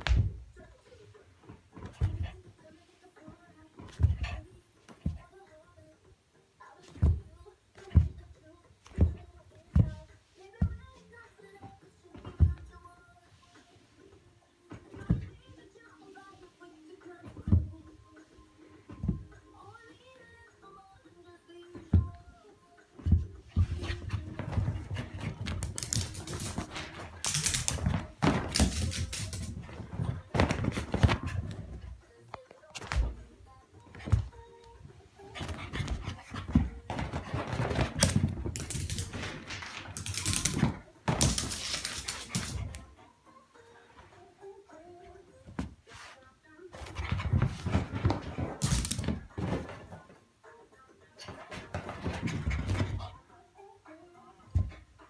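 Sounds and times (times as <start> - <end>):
dog paws running on wooden floor: 23.0 - 32.0, 35.3 - 42.9, 46.8 - 50.1, 51.2 - 53.1.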